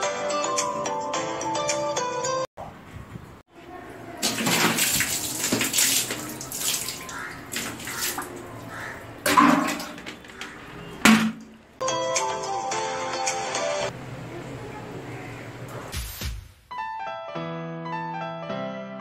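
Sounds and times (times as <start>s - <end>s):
water sloshing and splashing: 3.8s - 11.8s
toilet brush scrubbing bowl: 4.2s - 10.8s.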